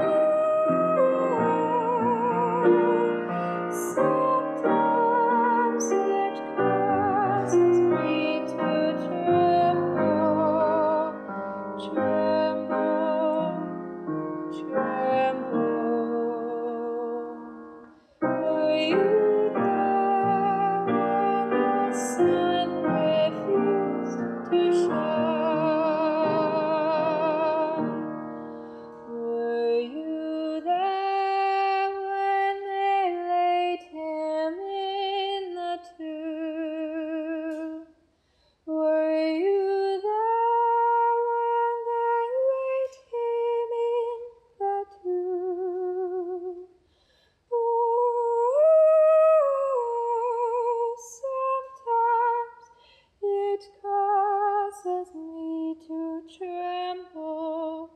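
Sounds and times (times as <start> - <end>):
woman singing: 0.0 - 38.0, 38.7 - 46.7, 47.5 - 57.9.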